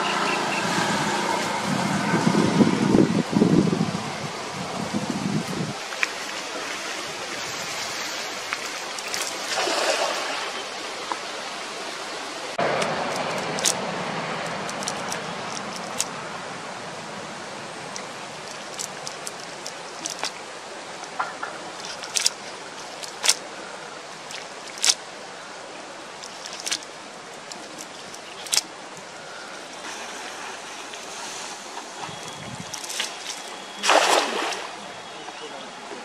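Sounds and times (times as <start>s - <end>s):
steady outdoor hiss: 0.0s - 36.0s
net clicks and ticks: 8.5s - 9.5s, 12.8s - 13.8s, 14.4s - 16.2s, 17.9s - 20.4s, 21.8s - 23.4s, 24.2s - 25.0s, 26.2s - 28.7s.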